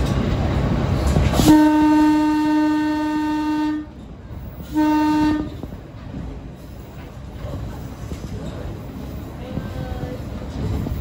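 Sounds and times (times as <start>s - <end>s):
train running noise: 0.0s - 11.0s
train horn blasts: 1.4s - 4.0s, 4.6s - 5.7s.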